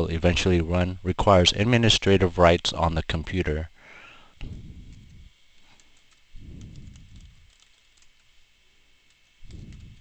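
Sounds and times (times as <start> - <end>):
soft low rumbles: 4.4 - 8.2, 9.4 - 10.0
keyboard keys clicking: 5.8 - 8.3.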